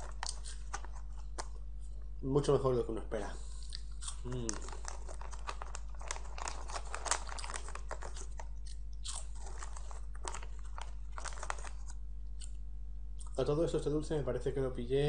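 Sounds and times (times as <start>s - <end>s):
chewing and crunching snack: 0.0s - 1.6s, 3.4s - 13.4s.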